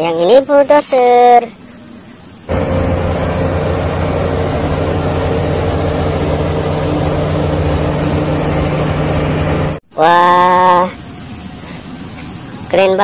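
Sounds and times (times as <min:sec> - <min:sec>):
bulldozer diesel engine droning: 0:02.5 - 0:09.8.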